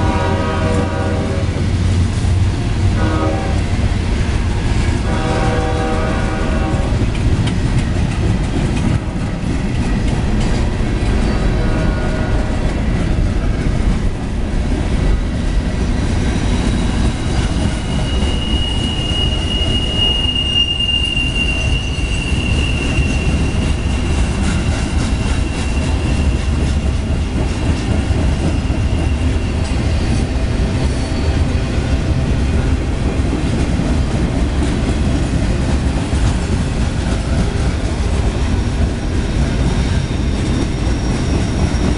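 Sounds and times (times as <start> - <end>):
freight train rolling past: 0.0 - 41.9
high wheel squeal: 16.3 - 26.6, 28.4 - 30.3.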